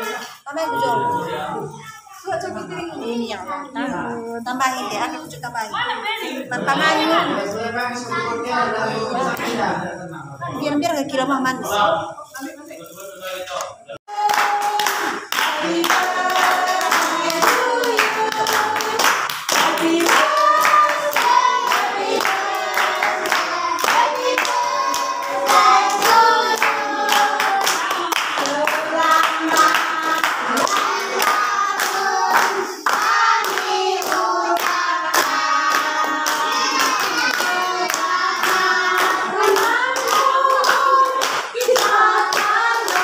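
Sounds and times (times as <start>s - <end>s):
group singing birthday song: 0.0s - 43.0s
hand-clapping: 14.1s - 43.0s.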